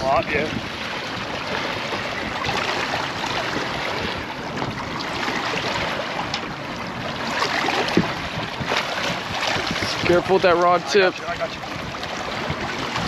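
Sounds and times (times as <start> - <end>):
wind noise on microphone: 0.0 - 13.0
fish thrashing and splashing water: 0.6 - 11.0.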